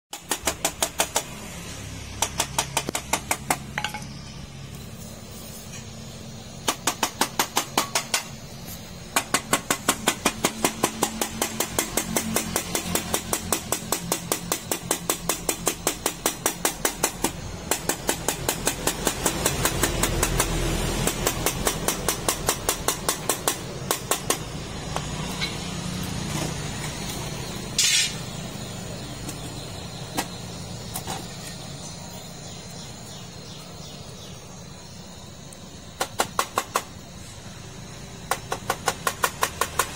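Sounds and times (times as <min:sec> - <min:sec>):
torch hissing: 0:17.1 - 0:29.1.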